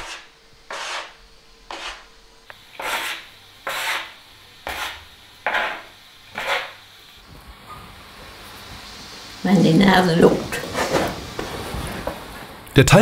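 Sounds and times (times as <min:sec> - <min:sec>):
dough scraping on wooden board: 0:00.0 - 0:02.1, 0:02.8 - 0:06.8.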